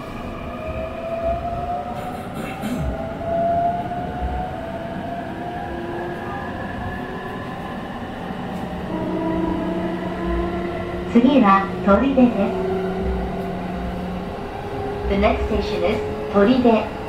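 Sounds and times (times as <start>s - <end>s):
wheels rumbling on rail: 0.0s - 17.0s
traction motors whining: 8.3s - 16.8s.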